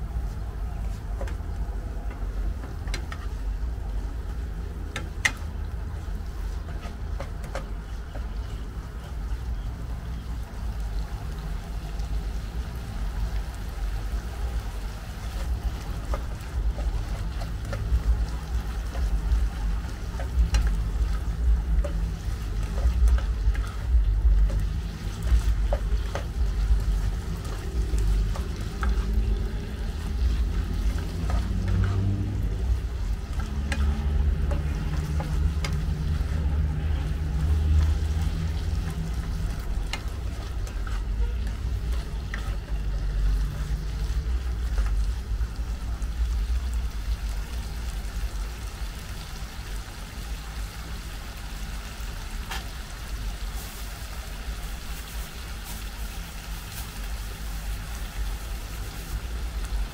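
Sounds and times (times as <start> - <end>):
food frying in a pan: 0.0 - 59.9
low rumble: 15.6 - 47.6.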